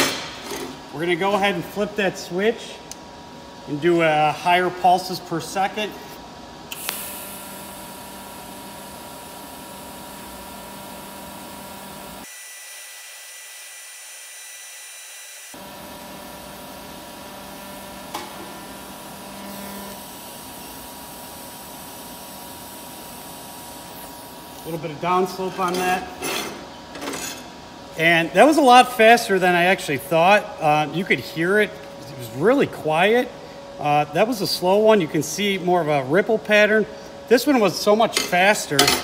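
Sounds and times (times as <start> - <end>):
welder click: 6.7 - 7.2
welding arc hissing: 6.7 - 25.0.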